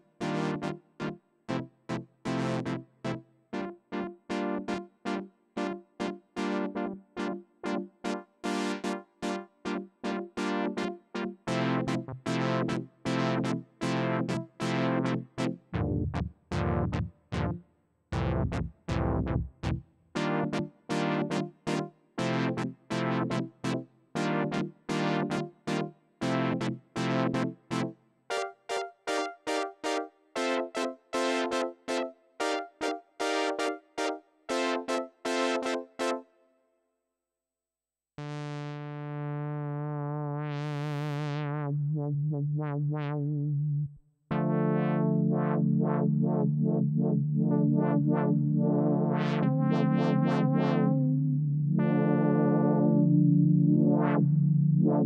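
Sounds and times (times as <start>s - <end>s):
deep synth bass notes: 15.8s - 17.6s, 18.2s - 19.8s, 39.0s - 55.0s.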